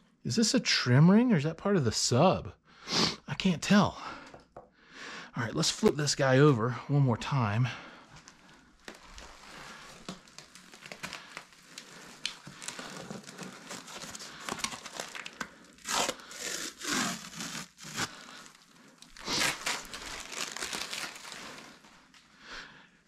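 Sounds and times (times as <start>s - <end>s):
plastic packing crinkling: 8.2s - 22.2s.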